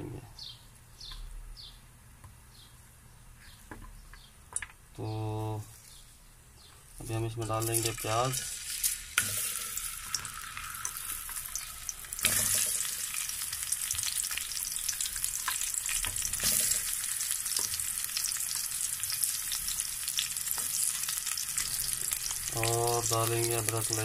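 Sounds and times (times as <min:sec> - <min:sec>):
oil popping and crackling: 0:07.4 - 0:24.0
onions sizzling in hot oil: 0:07.4 - 0:24.0.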